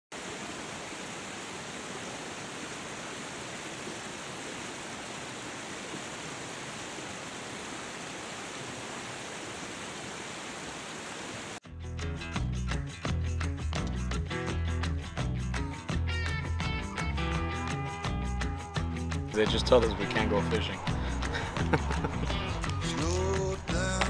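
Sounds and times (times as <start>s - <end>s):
river water rushing over rapids: 0.1s - 11.6s
rock music with guitar and bass: 11.6s - 24.0s.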